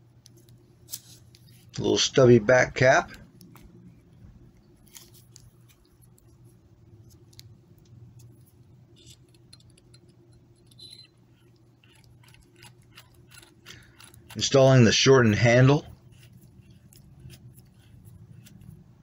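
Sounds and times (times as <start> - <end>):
steady low hum: 0.0 - 19.0
brief squeak: 10.7 - 11.2.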